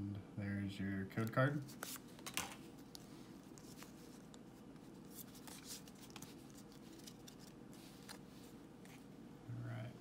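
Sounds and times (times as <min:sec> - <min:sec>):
low steady hum: 0:00.0 - 0:10.0
cards rustling and ticking: 0:01.2 - 0:09.1.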